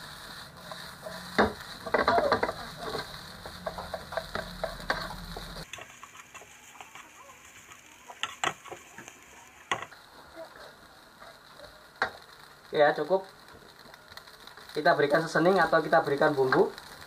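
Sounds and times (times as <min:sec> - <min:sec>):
spatula scraping a frying pan: 0:00.0 - 0:09.3.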